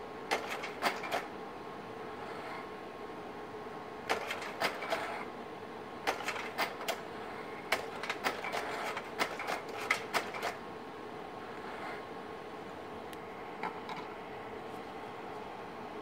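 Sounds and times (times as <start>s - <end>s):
projector hum: 0.0s - 16.0s
slide projector mechanical clicks: 7.7s - 10.6s.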